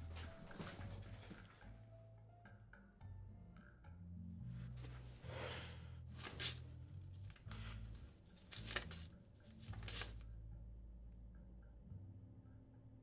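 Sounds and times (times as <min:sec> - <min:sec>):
paper cards flicking: 0:06.2 - 0:06.6, 0:08.4 - 0:10.2
paper cards rustling: 0:06.2 - 0:06.6, 0:07.2 - 0:10.2.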